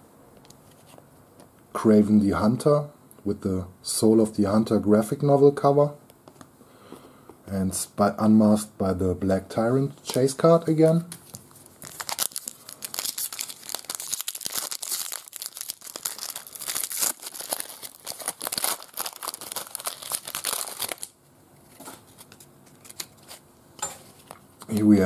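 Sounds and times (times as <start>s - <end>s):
foil wrapper crinkling and tearing: 11.2s - 21.2s, 21.8s - 23.4s.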